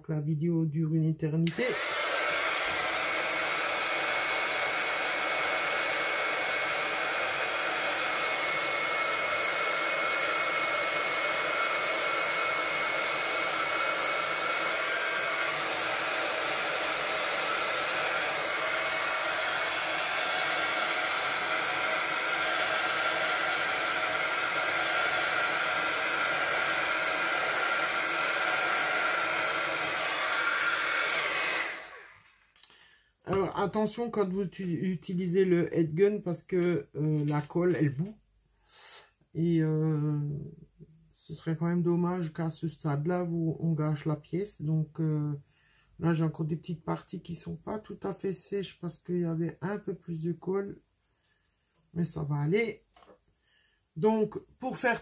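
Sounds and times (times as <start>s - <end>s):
heat gun blowing air: 1.4s - 32.7s.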